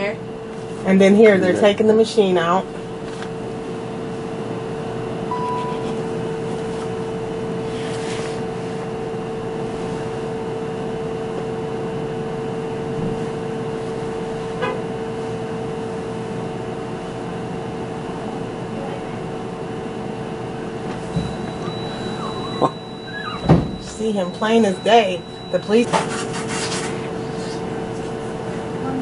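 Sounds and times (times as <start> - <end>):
steady machine hum: 0.0 - 29.0
short high beep: 5.3 - 6.0, 21.3 - 26.0.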